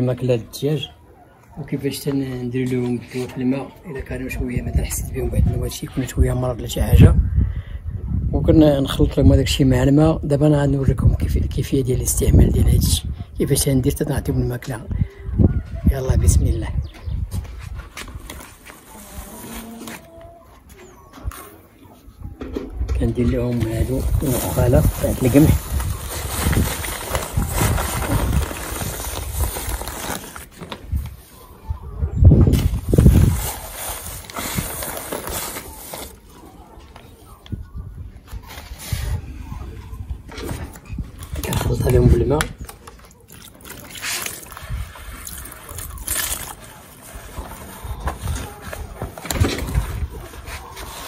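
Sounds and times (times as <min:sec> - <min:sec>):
plastic sack rustling: 0:23.5 - 0:31.2, 0:32.5 - 0:36.3
hand squeezing wet bran: 0:43.0 - 0:46.6
water pouring from plastic bottle: 0:43.0 - 0:46.6.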